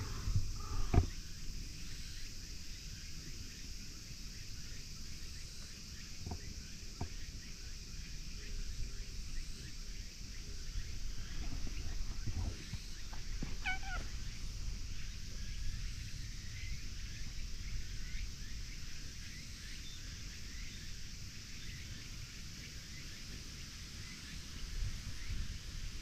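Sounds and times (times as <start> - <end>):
cat meowing: 13.6 - 14.1.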